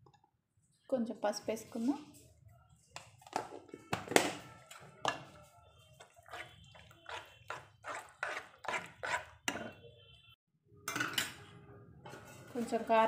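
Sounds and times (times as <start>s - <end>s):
metal spoon stirring stew in pan: 4.7s - 9.9s.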